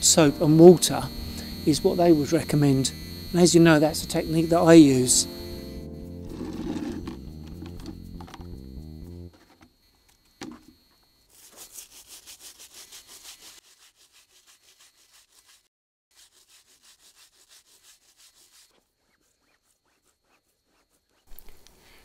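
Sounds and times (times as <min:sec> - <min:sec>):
brush scrubbing rubber tyre: 0:06.2 - 0:08.4, 0:11.3 - 0:21.4.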